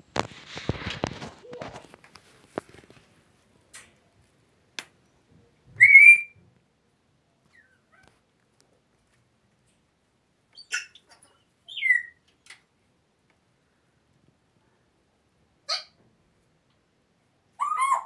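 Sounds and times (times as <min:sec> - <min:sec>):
parrot whistling: 0:05.8 - 0:06.4.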